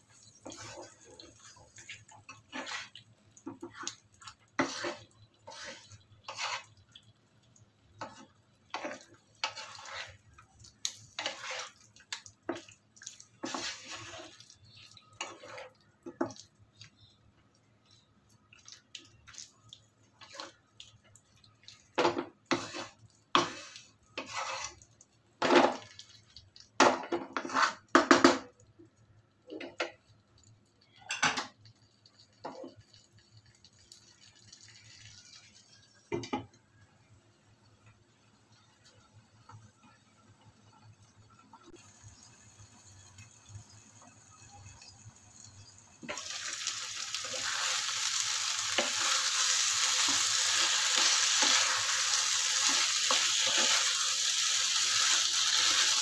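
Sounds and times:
wooden spatula scraping frying pan: 0:00.4 - 0:06.8, 0:08.0 - 0:10.2, 0:11.1 - 0:11.8, 0:13.4 - 0:14.4, 0:15.2 - 0:15.8, 0:22.0 - 0:24.8, 0:26.8 - 0:28.2, 0:47.2 - 0:54.1.

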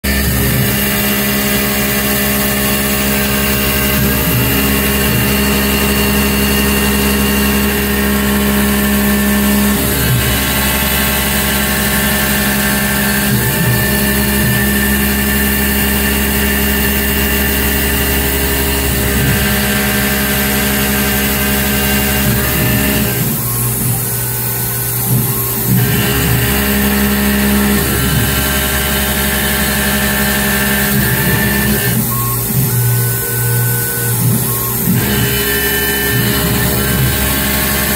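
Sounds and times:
milling machine hum: 0:00.0 - 0:37.9.

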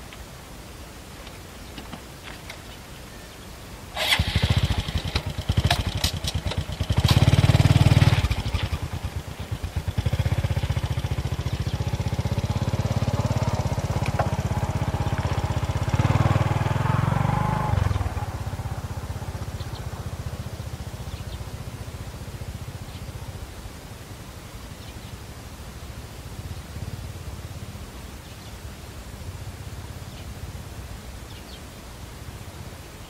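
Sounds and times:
small engine puttering: 0:04.0 - 0:22.6.

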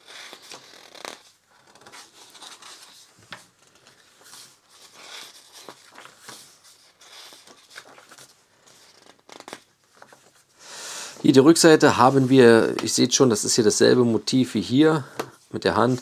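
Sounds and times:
paper pages turning: 0:00.0 - 0:10.5.

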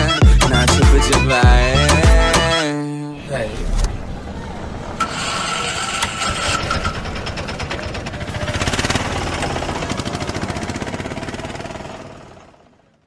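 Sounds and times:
motorcycle engine running: 0:05.0 - 0:13.0.

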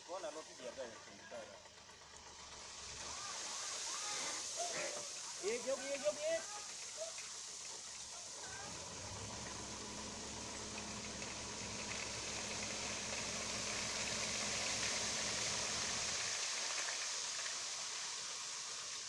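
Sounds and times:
truck engine hum: 0:00.0 - 0:17.4
sand sliding out with rushing hiss: 0:02.5 - 0:19.0.

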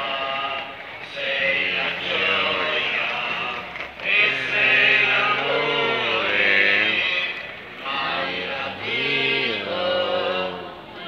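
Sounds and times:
voices singing a hymn: 0:00.0 - 0:11.0.

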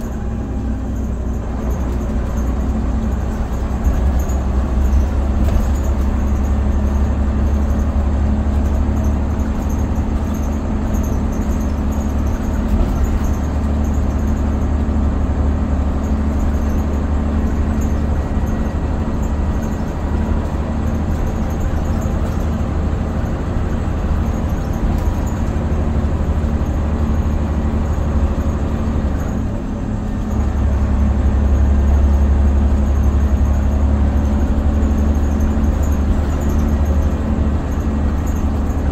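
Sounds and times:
bus engine drone: 0:00.0 - 0:38.9
road noise: 0:00.0 - 0:38.9.

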